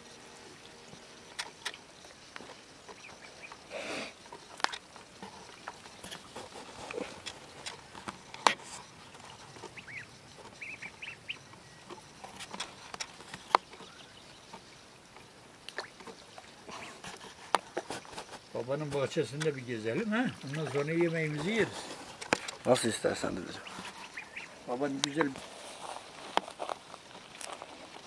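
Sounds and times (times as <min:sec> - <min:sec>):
ducks dabbling in water: 0:00.0 - 0:28.0
small splashes: 0:11.8 - 0:28.0.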